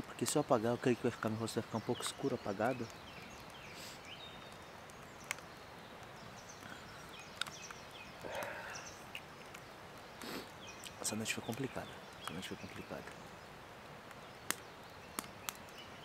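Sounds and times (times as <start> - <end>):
campfire burning: 0.0 - 16.0
sharp fire pops: 14.0 - 15.8.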